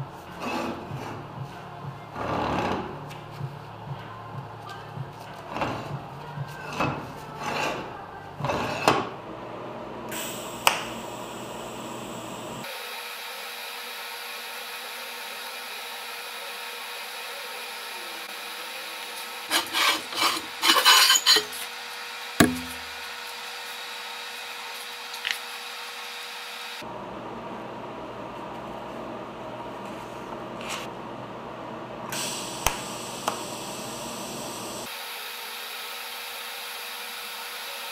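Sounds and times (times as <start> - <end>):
welding arc hissing and humming: 10.1 - 20.0, 21.5 - 26.8, 32.1 - 37.9
steel plates clanking and scraping: 19.5 - 21.7.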